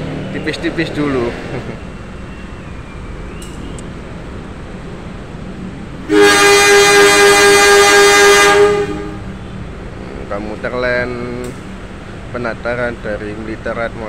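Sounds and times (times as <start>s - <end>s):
locomotive horn blast: 6.0s - 9.5s.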